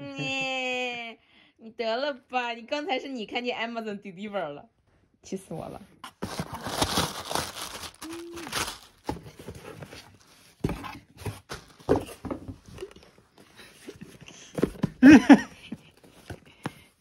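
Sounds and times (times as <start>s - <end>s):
cardboard box knocks and rustles: 9.0s - 12.7s.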